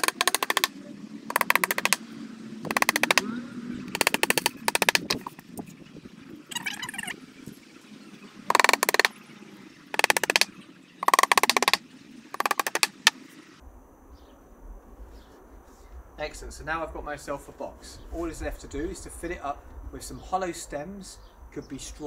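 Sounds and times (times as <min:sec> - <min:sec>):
hammer tapping nails into wood: 0:00.0 - 0:00.7, 0:01.3 - 0:02.0, 0:02.7 - 0:03.3, 0:03.9 - 0:05.3, 0:08.5 - 0:09.1, 0:10.0 - 0:11.8, 0:12.4 - 0:13.1.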